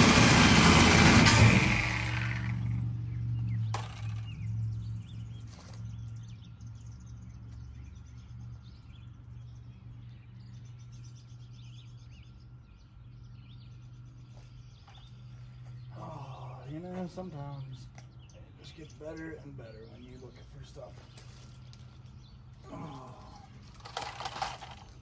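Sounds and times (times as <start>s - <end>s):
reciprocating saw winding down: 0.0s - 2.8s
birds chirping: 2.5s - 25.0s.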